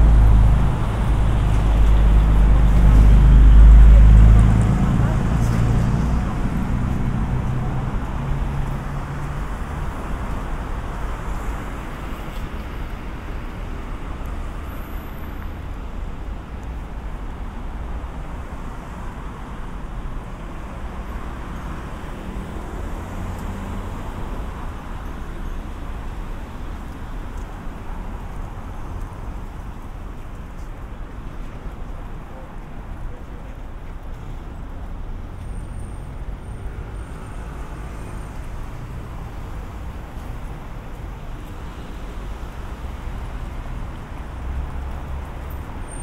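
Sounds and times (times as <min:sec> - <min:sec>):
passing vehicle engine hum: 0:00.0 - 0:11.8
road traffic rush: 0:00.0 - 0:46.0.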